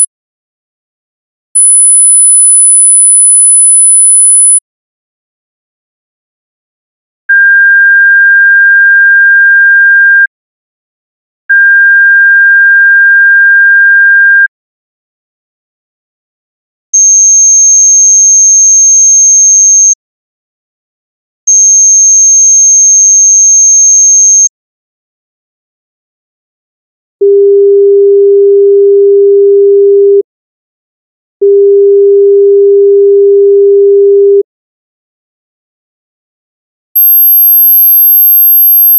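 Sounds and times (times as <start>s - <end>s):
sine wave test tone: 1.6s - 4.6s, 27.2s - 30.2s, 31.4s - 34.4s, 37.0s - 38.9s.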